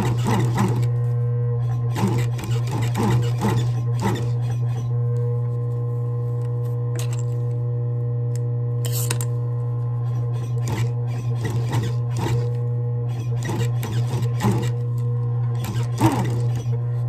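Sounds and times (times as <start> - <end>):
sewing machine motor humming: 0.0 - 5.2, 10.0 - 17.0
sewing machine stitch clacks: 1.9 - 4.3, 13.3 - 14.8.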